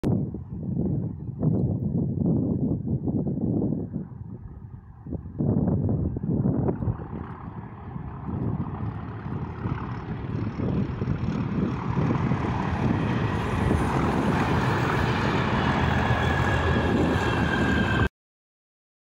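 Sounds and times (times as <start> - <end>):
diesel locomotive engines rumbling: 6.9 - 18.1
steady high whistle: 15.6 - 18.1.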